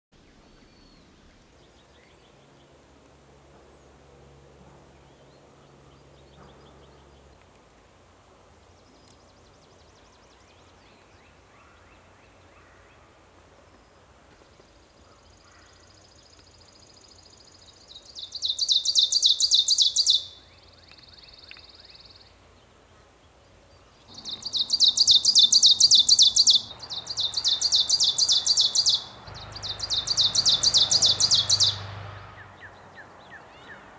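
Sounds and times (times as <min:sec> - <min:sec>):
faint bird calls: 0:24.1 - 0:33.9.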